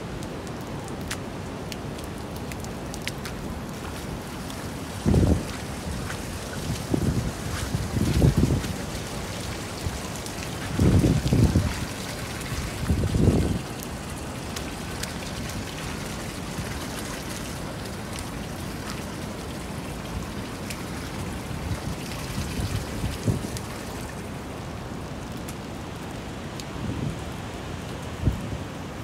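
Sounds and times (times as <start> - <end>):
steady rain hiss: 0.0 - 29.0
raindrops ticking: 0.1 - 26.7
wind buffeting microphone: 4.7 - 14.5, 21.2 - 23.8, 28.1 - 28.8.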